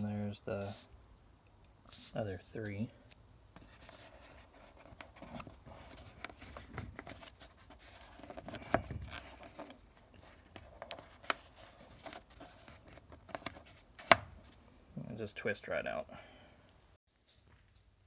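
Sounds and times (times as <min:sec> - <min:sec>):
rubber and plastic rubbing: 0:03.6 - 0:14.6.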